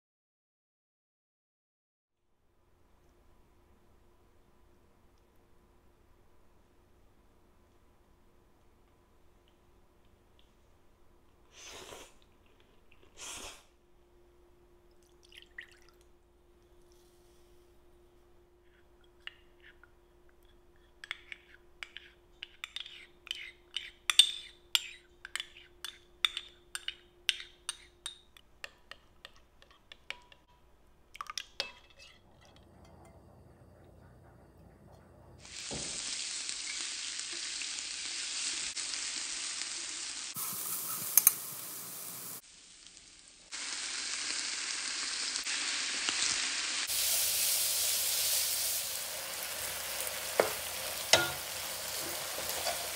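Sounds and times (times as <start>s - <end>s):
spatula clacking against pan: 21.0s - 30.5s, 50.4s - 52.9s
spoon clinking glass bowl: 21.0s - 30.6s, 50.4s - 51.6s
oil sizzling in frying pan: 35.4s - 52.9s.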